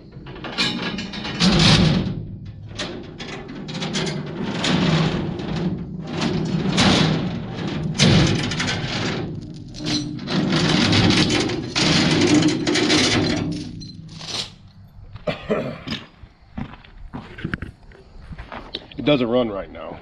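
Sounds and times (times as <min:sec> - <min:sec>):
chain rattling over steel deck: 0:00.0 - 0:15.0.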